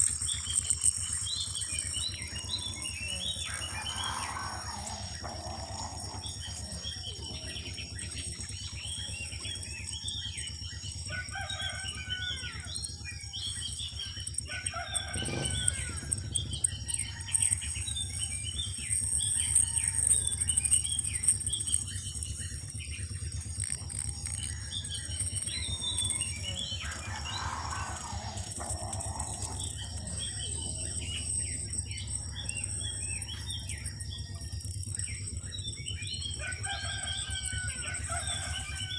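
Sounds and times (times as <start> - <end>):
high-pitched hum: 0.0 - 38.9
small birds chirping: 0.0 - 38.9
rooster crowing: 3.4 - 6.9, 11.1 - 12.9, 14.4 - 17.9, 25.8 - 30.8, 36.2 - 38.9.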